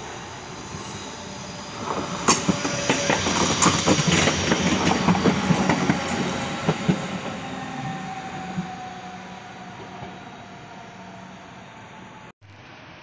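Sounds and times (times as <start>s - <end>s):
train rumble: 0.0s - 12.3s
train wheels clattering over rails: 1.8s - 7.4s.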